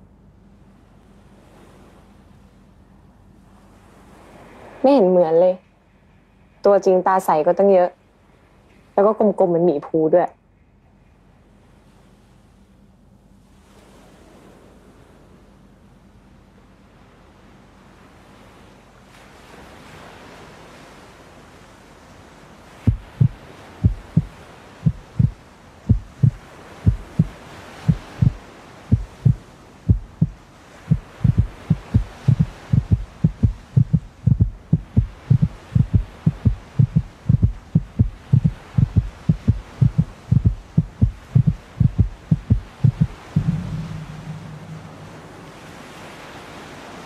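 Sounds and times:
heartbeat thumps: 0:22.9 - 0:45.2.

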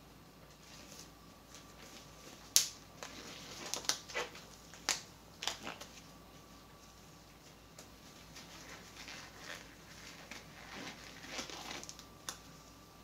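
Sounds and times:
rubber gloves snapping and crinkling: 0:01.0 - 0:06.0, 0:07.7 - 0:12.5.

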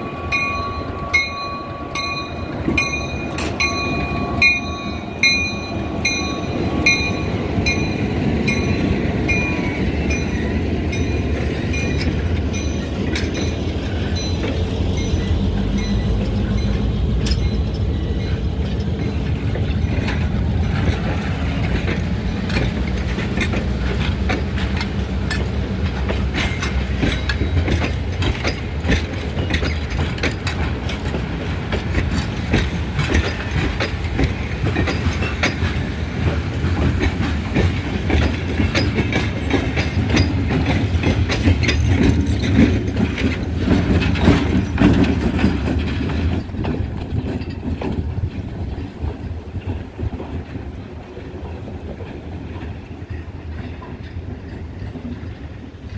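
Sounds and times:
bell ringing: 0:00.0 - 0:13.6
diesel locomotive rumbling: 0:00.0 - 0:55.9
train wheels clicking over rail joints: 0:00.3 - 0:55.9.

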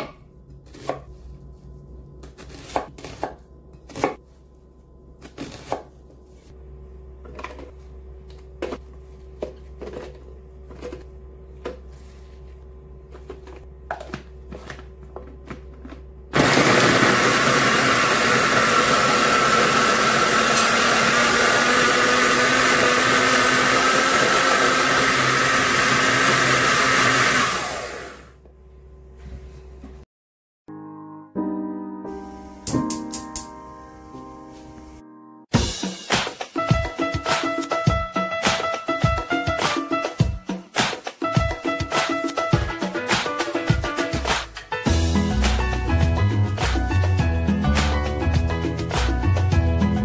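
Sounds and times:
food processor running: 0:15.2 - 0:28.4.

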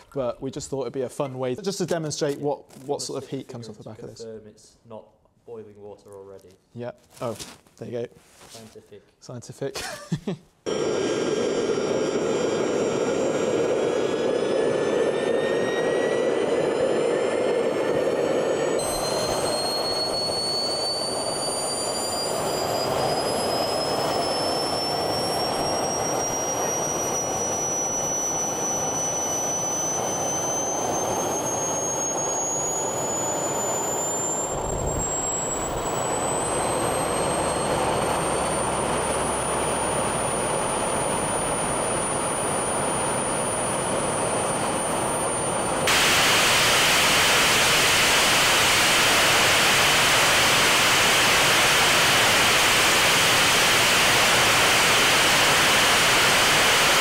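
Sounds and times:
turbine engine whine: 0:10.7 - 0:57.0
loud rushing hiss: 0:45.9 - 0:57.0.

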